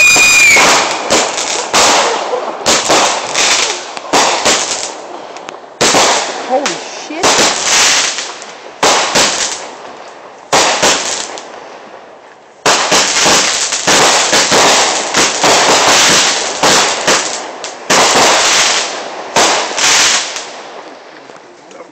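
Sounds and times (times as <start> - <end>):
fireworks shells bursting: 0.0 - 9.8.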